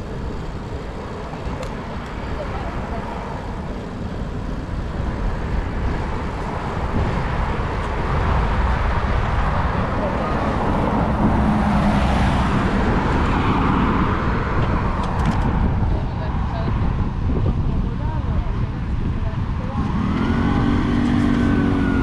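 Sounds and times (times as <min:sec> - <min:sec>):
road traffic: 0:00.0 - 0:22.0
wind rumbling on microphone: 0:00.0 - 0:22.0
vehicle passing close: 0:05.0 - 0:17.2, 0:18.2 - 0:22.0.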